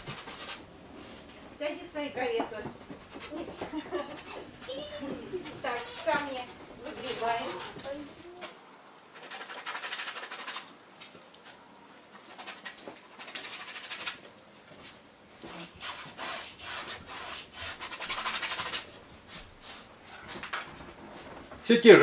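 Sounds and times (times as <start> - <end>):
bristle brush scrubbing canvas: 0.0 - 0.6, 2.7 - 8.1, 9.1 - 10.7, 12.1 - 14.2, 15.4 - 19.9.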